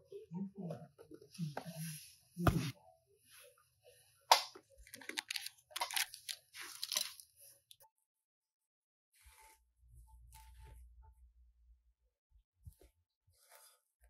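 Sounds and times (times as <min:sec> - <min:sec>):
packaging crinkling and rustling: 0:04.9 - 0:07.3.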